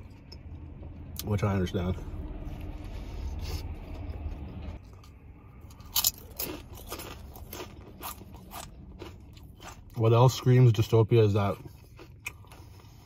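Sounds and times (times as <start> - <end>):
chewing with wet crunching: 2.6 - 13.0.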